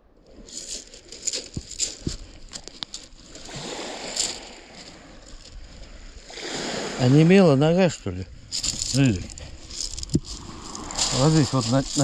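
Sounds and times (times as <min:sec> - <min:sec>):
hand rubbing wet fur: 0:08.6 - 0:12.0
pebbles clicking: 0:08.6 - 0:12.0.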